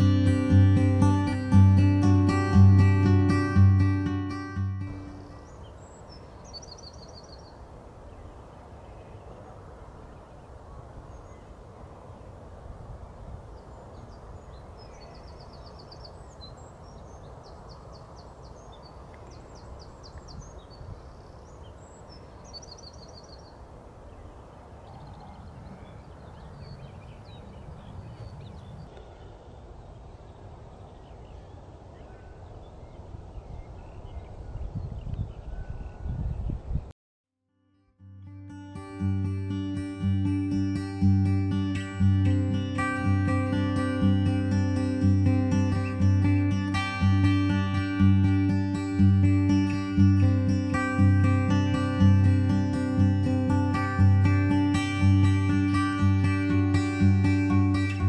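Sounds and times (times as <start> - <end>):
songbirds singing: 0.0 - 12.4, 13.5 - 36.7, 39.2 - 58.0
low wind rumble: 23.5 - 36.9.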